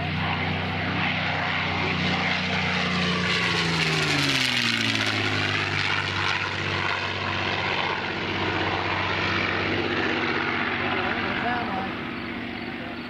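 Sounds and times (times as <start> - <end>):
propeller plane engine flyby: 0.0 - 13.0.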